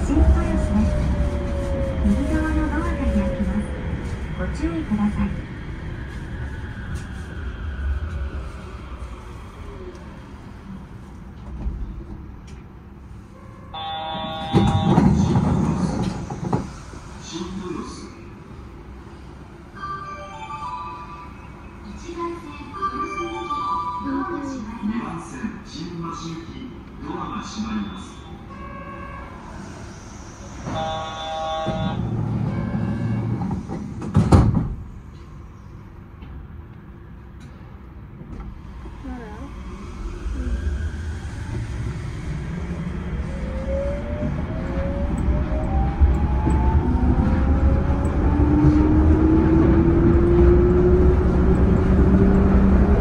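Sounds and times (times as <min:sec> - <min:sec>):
train doors closing rush: 0:00.0 - 0:22.6, 0:26.2 - 0:53.0
train low steady hum: 0:00.0 - 0:53.0
electronic door warning tone: 0:13.8 - 0:15.2, 0:30.7 - 0:33.2
train sliding doors thudding shut: 0:14.0 - 0:17.0, 0:30.6 - 0:35.3.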